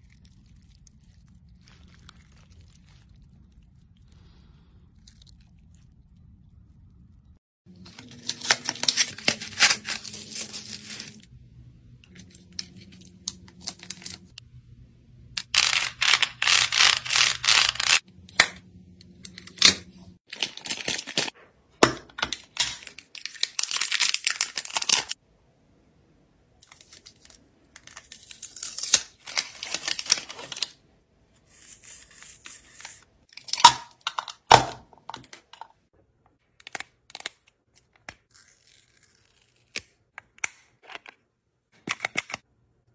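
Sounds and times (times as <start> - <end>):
plastic wrapping crinkling and tearing: 0.0 - 3.9, 7.7 - 11.3, 15.4 - 18.0, 19.5 - 21.4, 22.3 - 25.2, 26.6 - 30.8.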